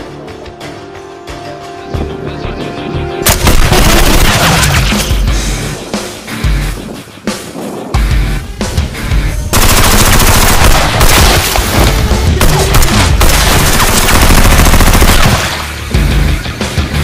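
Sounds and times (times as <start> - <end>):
background music: 0.0 - 17.0
rapid machine-gun fire: 3.3 - 4.9, 9.5 - 15.7.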